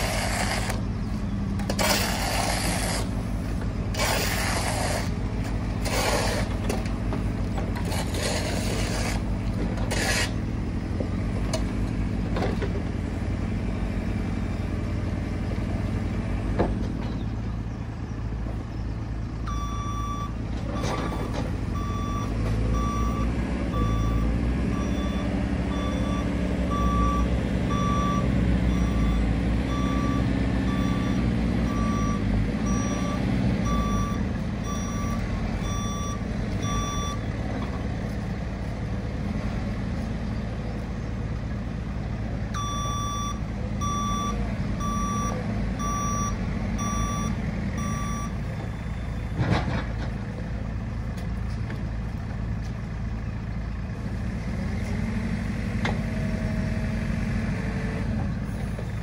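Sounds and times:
diesel engine running: 0:00.0 - 0:59.0
reversing alarm beeping: 0:19.5 - 0:37.3, 0:42.6 - 0:49.3.

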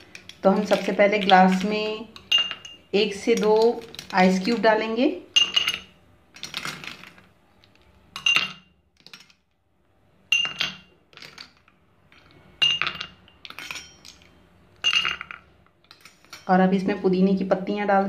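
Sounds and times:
ice cubes clinking in glass: 0:00.0 - 0:04.6, 0:05.4 - 0:09.4, 0:12.2 - 0:16.5.

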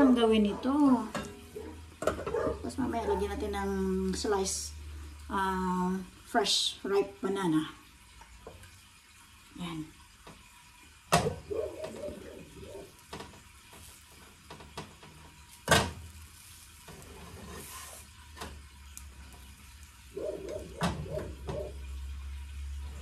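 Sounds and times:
pancake sizzling: 0:10.1 - 0:23.0
spatula scraping non-stick pan: 0:16.9 - 0:18.2.

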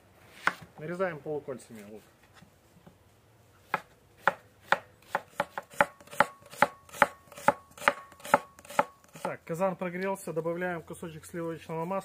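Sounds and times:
knife chopping on wooden board: 0:03.7 - 0:09.3.

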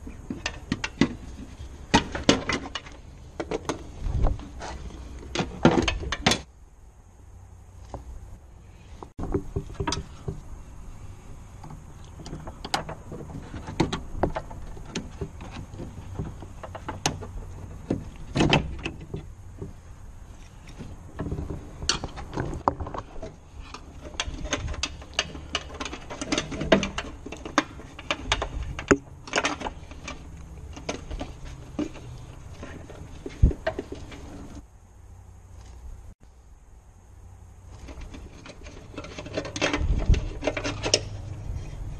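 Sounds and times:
plastic panel clicking and rattling: 0:23.8 - 0:34.3.

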